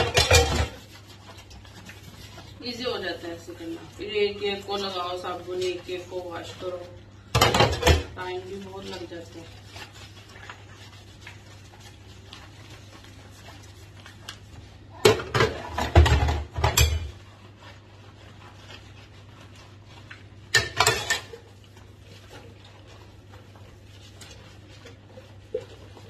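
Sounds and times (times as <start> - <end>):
steel pots and dishes clattering: 0.0 - 1.0, 7.3 - 8.4, 15.0 - 17.3, 20.4 - 21.6.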